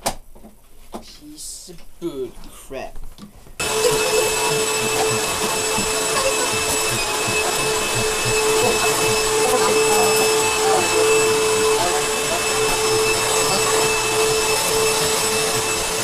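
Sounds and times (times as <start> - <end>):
vacuum cleaner running: 3.6 - 16.0.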